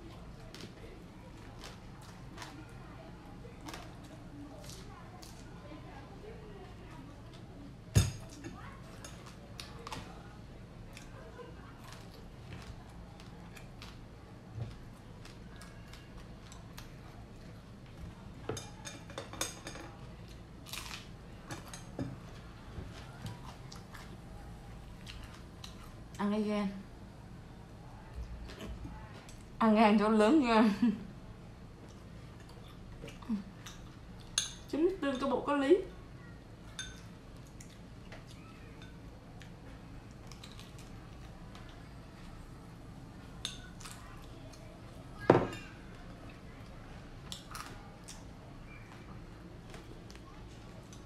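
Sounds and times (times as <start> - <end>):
chewing crisp food: 0.0 - 2.9, 3.5 - 5.5, 8.2 - 18.3, 19.9 - 26.2, 31.8 - 34.4, 36.6 - 45.0, 45.8 - 51.0
crunchy chewing: 19.9 - 26.2, 36.9 - 43.0, 45.8 - 51.0.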